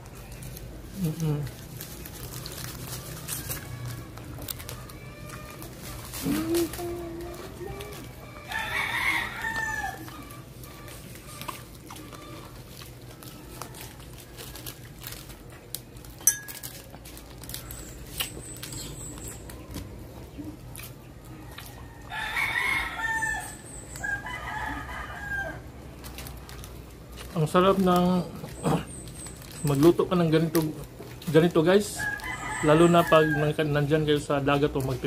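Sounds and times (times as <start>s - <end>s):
low steady hum: 0.0s - 31.6s
rooster crowing: 8.2s - 10.8s, 21.4s - 25.8s, 31.9s - 33.7s.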